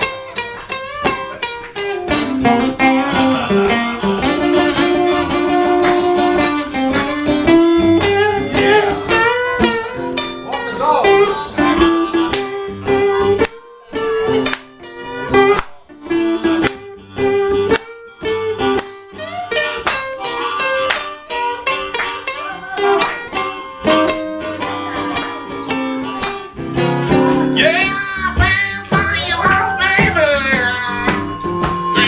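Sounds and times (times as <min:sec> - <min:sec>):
acoustic guitar strumming: 0:00.0 - 0:32.0
harmonica notes: 0:00.0 - 0:32.0
man singing: 0:27.4 - 0:31.1.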